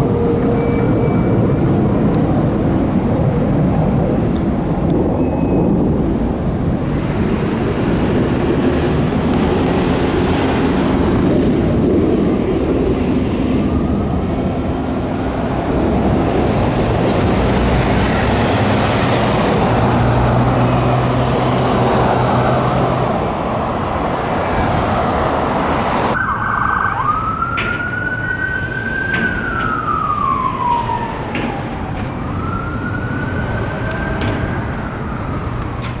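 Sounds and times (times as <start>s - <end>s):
heavy road traffic: 0.0s - 36.0s
ambulance siren wailing: 26.0s - 35.8s.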